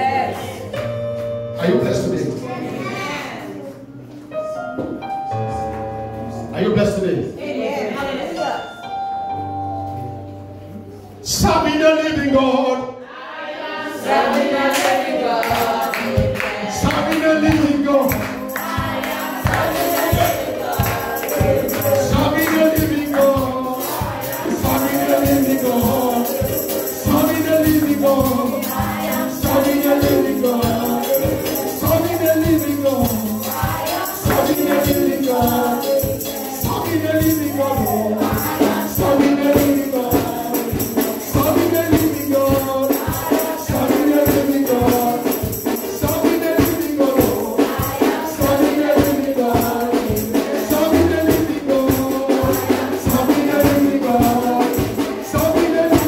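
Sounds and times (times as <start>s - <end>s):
choir singing: 7.4s - 8.8s, 12.8s - 56.0s
tambourine shaking: 14.8s - 56.0s
band with bass and beat: 15.7s - 56.0s.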